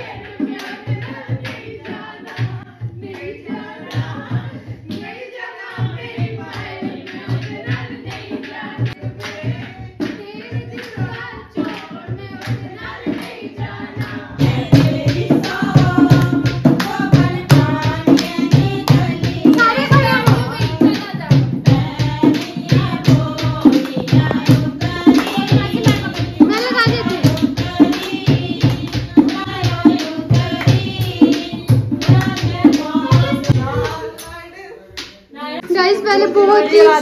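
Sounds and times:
women singing folk song: 0:00.0 - 0:37.0
hand claps: 0:00.2 - 0:03.3, 0:05.7 - 0:13.4, 0:14.8 - 0:34.4
hand drum beats: 0:05.7 - 0:34.0.

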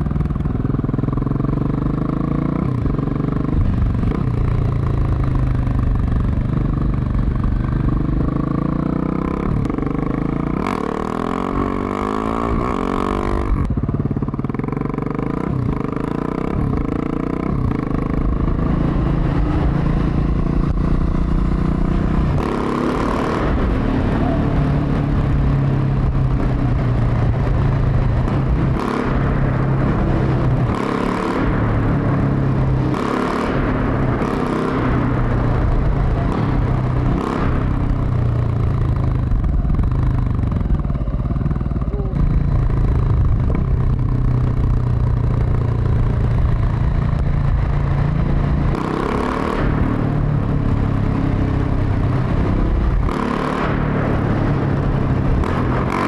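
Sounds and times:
motorcycle engine revving: 0:00.0 - 0:56.0.

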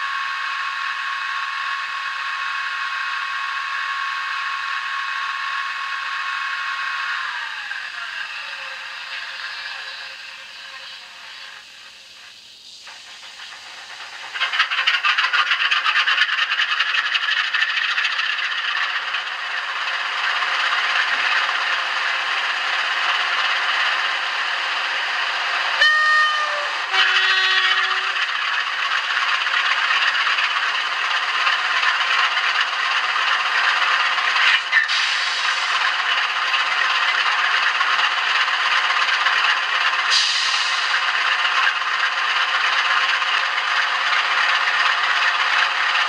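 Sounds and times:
diesel locomotive engine sound: 0:00.0 - 0:46.0
two-tone horn: 0:25.8 - 0:28.2.

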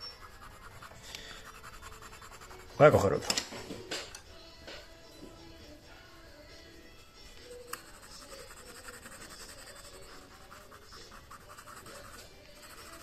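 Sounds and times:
pencil scratching on card: 0:00.0 - 0:03.0, 0:07.5 - 0:13.0.

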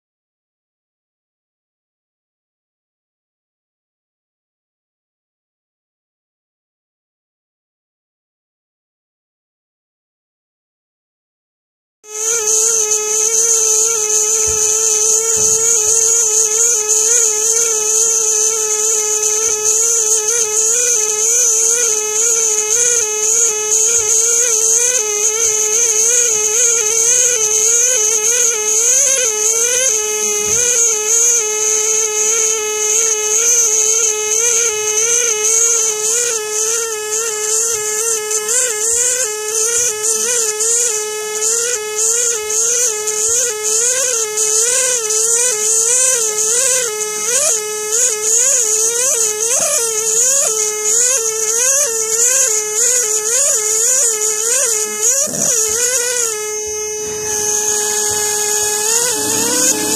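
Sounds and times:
pneumatic air scribe buzzing: 0:12.1 - 0:59.9.

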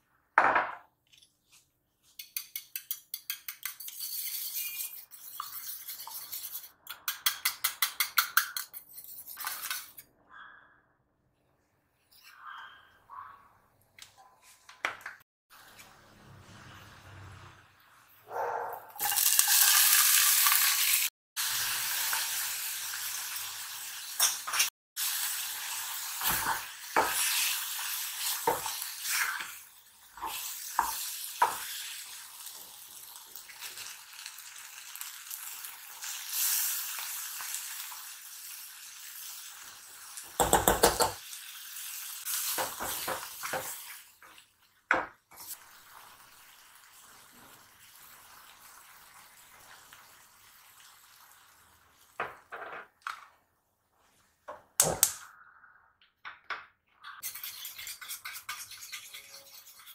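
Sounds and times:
food sizzling in a frying pan: 0:19.0 - 0:40.5, 0:41.1 - 0:44.4, 0:45.4 - 0:52.2.

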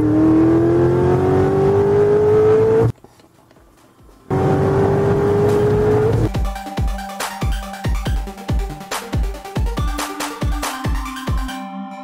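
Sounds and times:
car engine accelerating: 0:00.0 - 0:02.9, 0:04.3 - 0:06.3.

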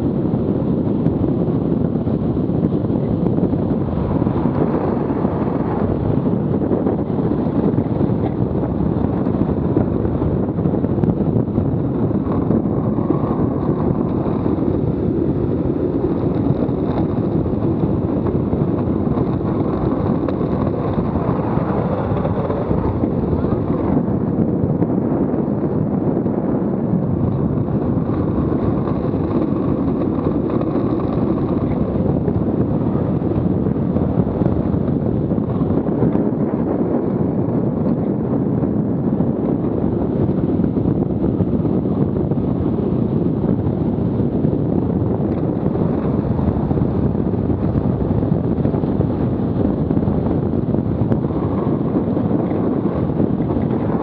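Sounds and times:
wheels rolling on asphalt: 0:00.0 - 0:54.0
wind buffeting microphone: 0:00.0 - 0:54.0.

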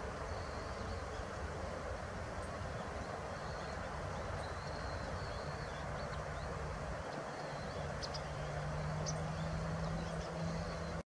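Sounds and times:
steady broad hiss: 0:00.0 - 0:10.9
faint high bird chirps: 0:03.0 - 0:06.5.

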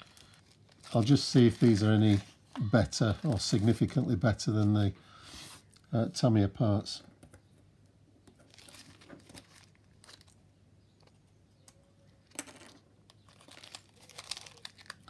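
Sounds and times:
packaging crinkling and rustling: 0:00.0 - 0:04.3, 0:08.3 - 0:11.2, 0:12.2 - 0:15.0.

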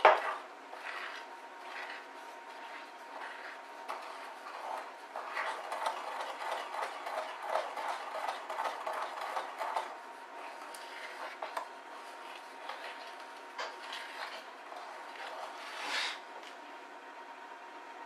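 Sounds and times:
spoon scraping glass bowl: 0:00.1 - 0:05.6, 0:10.4 - 0:16.2.

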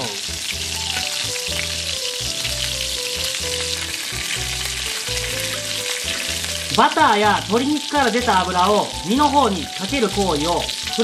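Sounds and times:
background music: 0:00.0 - 0:11.0
meat sizzling in fat: 0:00.0 - 0:11.0.

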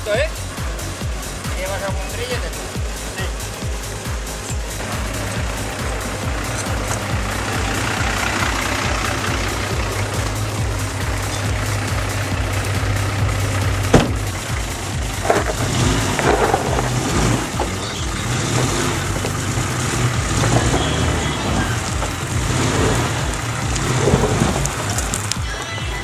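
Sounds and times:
car engine running: 0:00.0 - 0:26.0
short crackles: 0:18.6 - 0:25.7.

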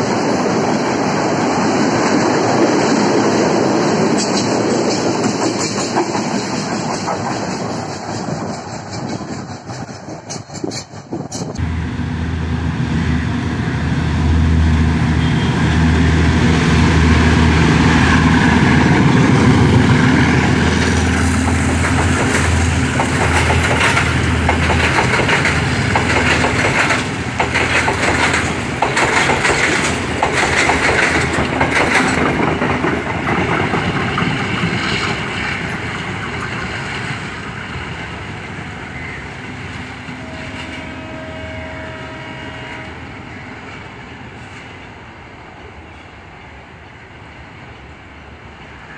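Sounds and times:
train wheels clattering over joints: 0:04.0 - 0:11.6, 0:21.4 - 0:37.2
locomotive engine drone: 0:11.6 - 0:48.9.

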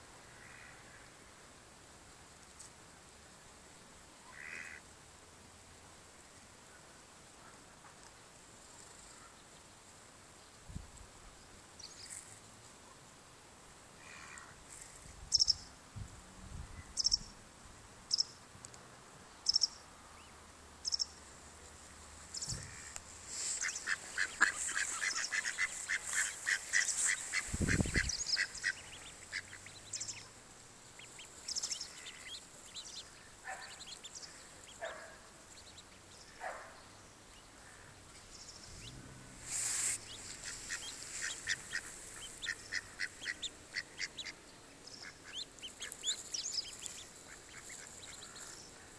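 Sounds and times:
ducks and ducklings calling: 0:22.2 - 0:36.6, 0:37.3 - 0:48.9.

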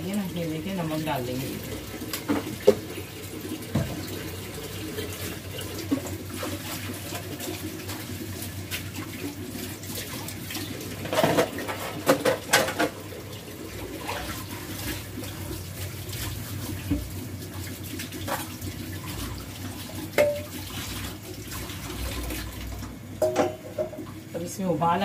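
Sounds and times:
kitchen tap running: 0:00.0 - 0:25.0
dishes knocking and clinking: 0:11.1 - 0:13.0, 0:20.2 - 0:20.5, 0:23.2 - 0:24.0.

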